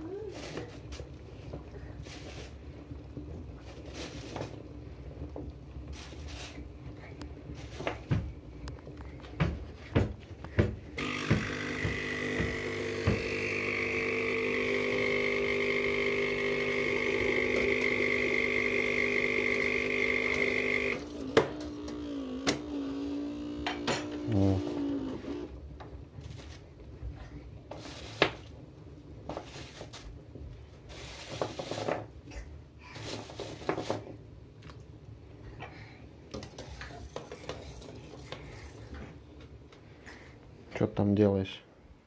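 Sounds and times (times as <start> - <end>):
electric appliance hum with whine: 0.0 - 27.6.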